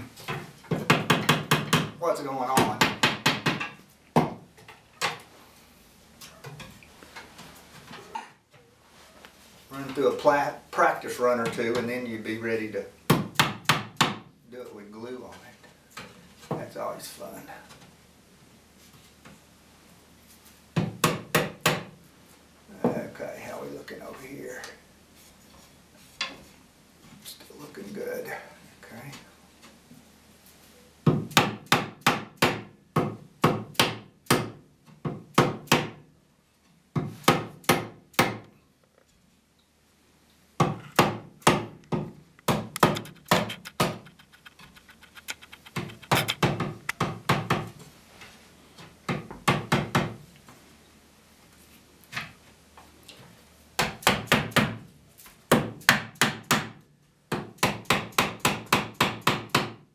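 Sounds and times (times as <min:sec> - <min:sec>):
rapid wooden knocks: 0:40.6 - 0:47.7.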